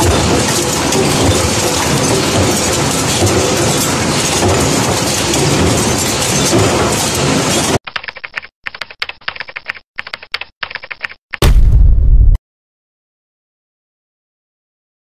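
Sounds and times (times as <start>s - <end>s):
rolling machine clattering: 0.0s - 7.8s
keyboard typing clicks: 7.9s - 11.4s.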